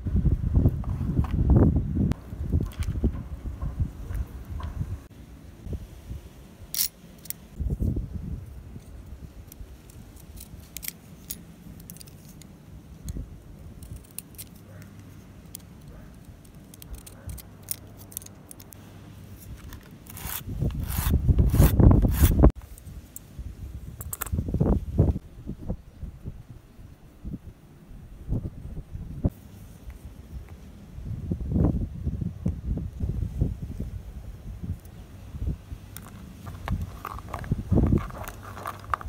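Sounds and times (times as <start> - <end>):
craft knife carving wood: 13.7 - 18.8, 19.4 - 22.6
hand tools scraping wood: 19.5 - 22.5, 36.1 - 39.0.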